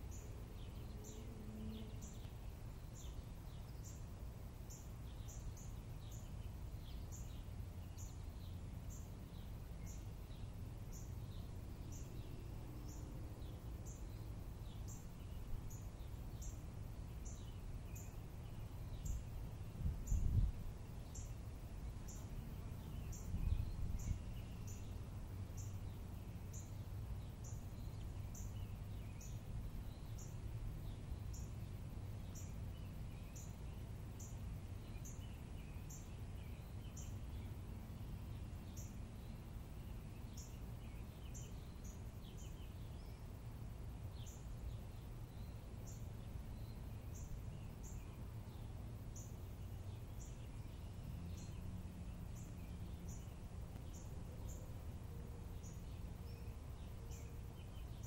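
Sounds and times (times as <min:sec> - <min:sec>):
wind rumble on microphone: 0:09.8 - 0:33.4
birds chirping: 0:38.3 - 0:58.0.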